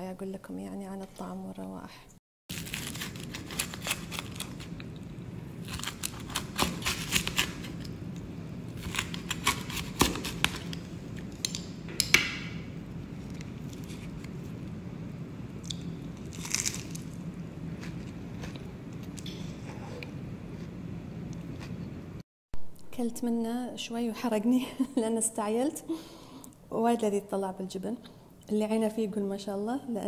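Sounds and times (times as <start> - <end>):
low steady hum: 0.0 - 30.0
pizza cutter crunching flatbread: 2.5 - 5.0, 5.6 - 8.0, 8.7 - 11.4, 16.2 - 17.2.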